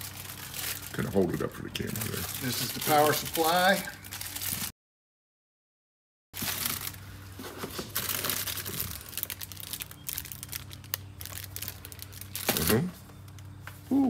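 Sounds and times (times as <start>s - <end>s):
plastic packaging crinkling: 0.0s - 4.7s, 6.4s - 13.6s.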